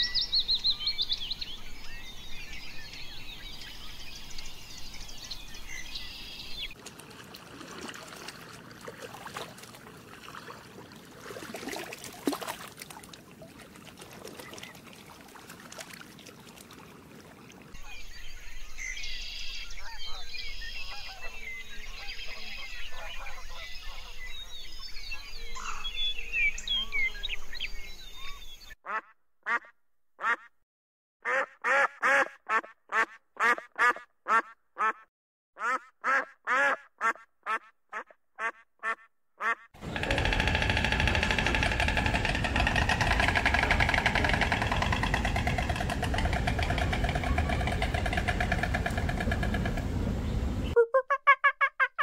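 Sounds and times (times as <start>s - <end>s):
chorus of overlapping animal calls: 19.6s - 24.4s, 39.8s - 50.7s.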